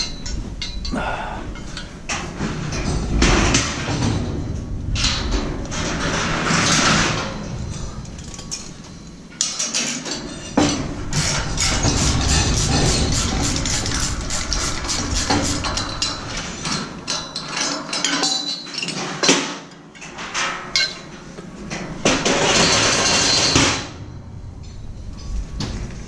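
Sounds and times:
metal scraping: 0.0 - 18.1
heavy metal knocks: 10.6 - 17.5.

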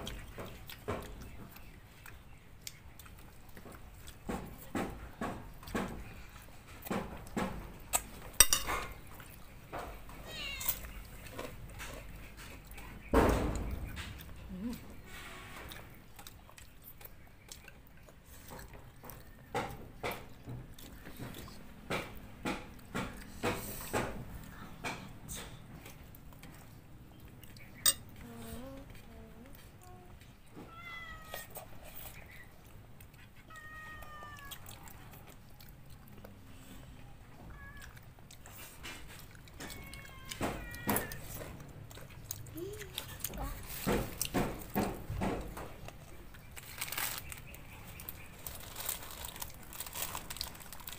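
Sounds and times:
chewing and mouth sounds: 0.0 - 13.1, 13.9 - 30.5, 31.3 - 50.9
cat meowing: 10.2 - 11.0, 30.6 - 31.6, 33.4 - 34.9, 37.4 - 38.1, 39.6 - 41.3.

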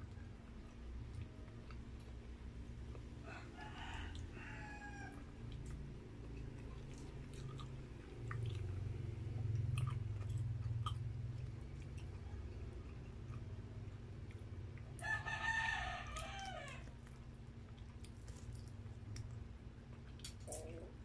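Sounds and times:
close chewing with mouth smacks: 0.0 - 3.2, 5.1 - 15.1, 16.1 - 21.0
rooster crowing: 3.2 - 5.4, 15.0 - 16.9.

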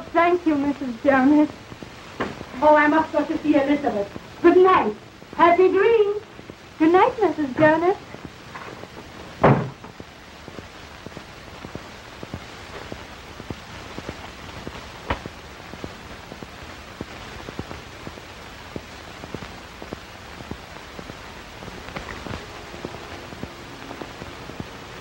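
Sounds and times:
film soundtrack hiss and crackle: 0.0 - 25.0
door shutting thump: 9.4 - 9.9.

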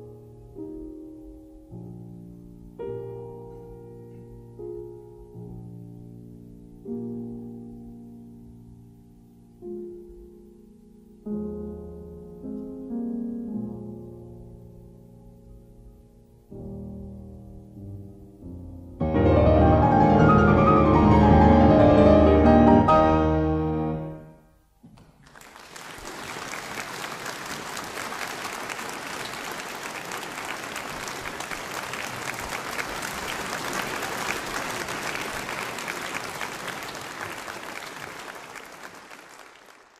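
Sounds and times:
piano chords: 0.0 - 24.7
audience applauding: 24.9 - 39.9.

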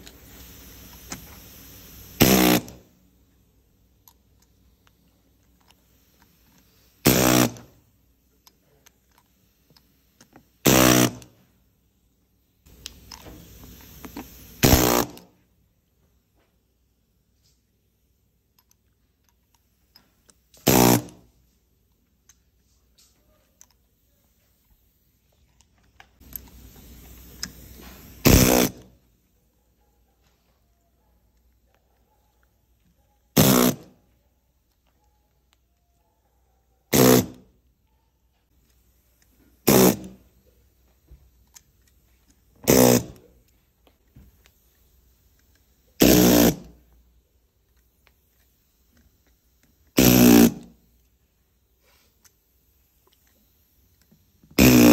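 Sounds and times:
pneumatic air hammer buzzing: 0.0 - 3.0, 5.4 - 7.8, 9.1 - 11.4, 12.7 - 15.4, 20.5 - 21.3, 26.2 - 29.0, 33.3 - 34.0, 36.9 - 37.5, 39.2 - 40.6, 41.4 - 43.5, 44.4 - 46.9, 47.7 - 51.2, 52.1 - 54.9
power tool rattling burst: 2.2 - 2.8, 7.0 - 7.8, 10.6 - 11.3, 14.3 - 15.2, 20.6 - 21.2, 26.4 - 28.9, 33.4 - 33.9, 39.6 - 40.2, 42.6 - 43.2, 46.0 - 46.7, 49.9 - 50.7, 54.6 - 54.9.

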